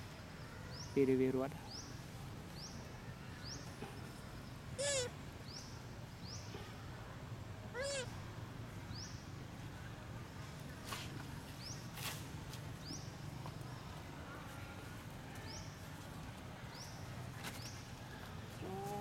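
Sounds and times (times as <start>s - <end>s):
monkey calls: 4.8s - 5.1s, 7.8s - 8.1s.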